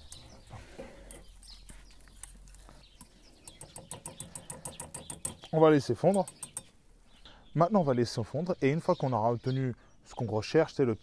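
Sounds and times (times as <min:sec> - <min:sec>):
wire whisk clicking against saucepan: 0:03.0 - 0:05.5, 0:06.1 - 0:06.7.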